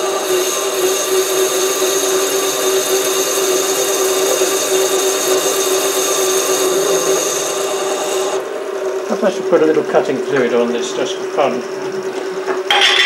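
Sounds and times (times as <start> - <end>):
hiss of metal cutting: 0.0 - 8.4
lathe motor whine: 0.0 - 13.0.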